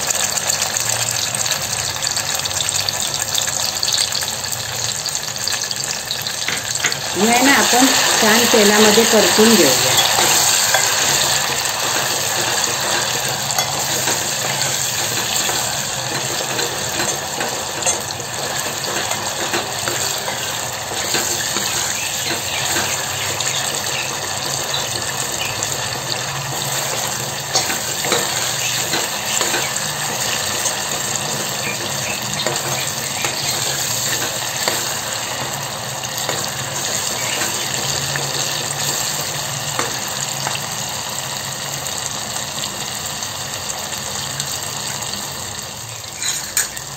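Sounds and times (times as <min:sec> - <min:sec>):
paste sizzling in hot oil: 0:00.0 - 0:46.9
ladle clicking and scraping pot: 0:09.8 - 0:35.6.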